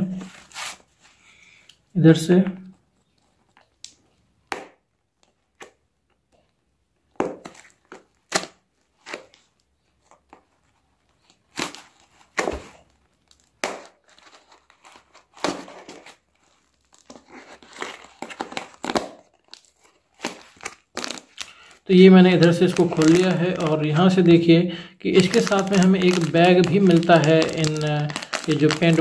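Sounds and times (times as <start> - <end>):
plastic mailer tearing and crinkling: 11.2 - 29.0.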